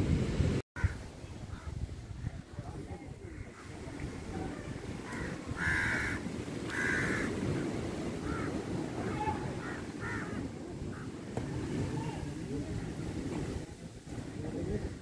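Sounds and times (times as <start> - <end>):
crows cawing: 5.0 - 7.5, 8.2 - 8.8, 9.6 - 11.1.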